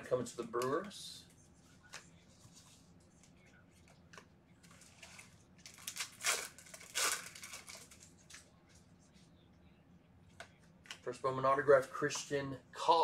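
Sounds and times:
foil wrapper tearing and crinkling: 5.6s - 8.0s.

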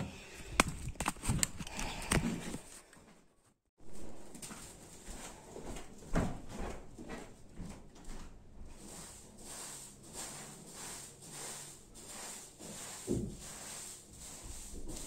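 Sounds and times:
broom sweeping a floor: 8.0s - 15.0s.

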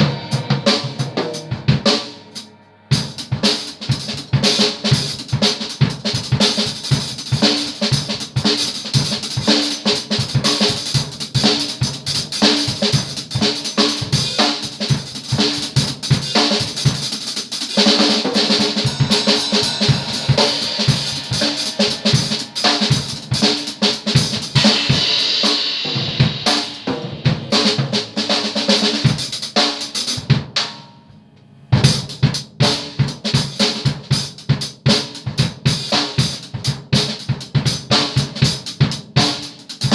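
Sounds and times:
cymbals ringing: 0.0s - 3.7s, 17.8s - 29.1s
drum kit played fast: 0.0s - 30.9s, 31.7s - 39.9s.

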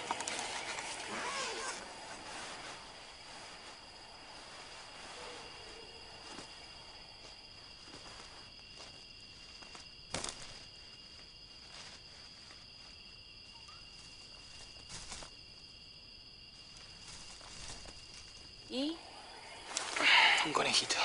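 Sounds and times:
footsteps on twigs: 0.0s - 18.6s
crickets trilling: 0.0s - 21.0s
twigs snapping: 6.1s - 12.8s.

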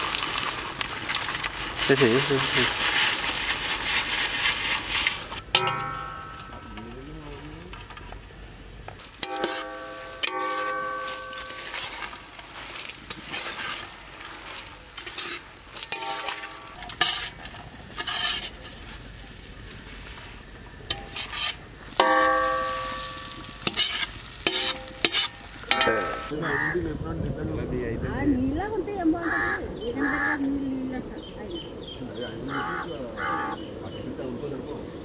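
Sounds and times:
light frying sizzle: 0.0s - 5.4s, 9.0s - 26.3s
skimmer scraping a wok: 0.0s - 6.4s, 9.0s - 26.3s
metal wok ringing: 5.4s - 7.2s, 9.1s - 12.8s, 15.0s - 17.4s, 20.9s - 26.4s.

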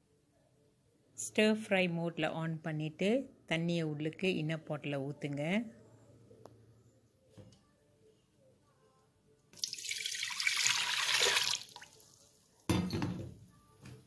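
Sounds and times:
water pouring into a pot: 9.6s - 12.3s.

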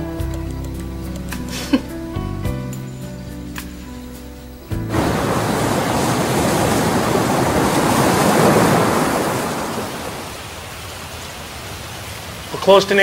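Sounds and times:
waves breaking: 4.9s - 13.0s.

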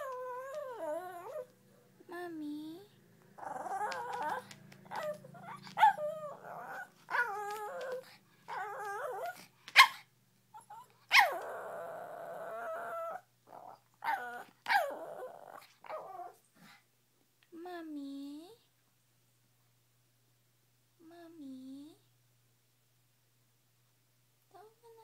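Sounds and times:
dog whining and howling: 0.0s - 1.5s, 3.4s - 9.9s, 10.5s - 16.4s
dog yipping: 3.4s - 11.6s, 12.7s - 15.0s.

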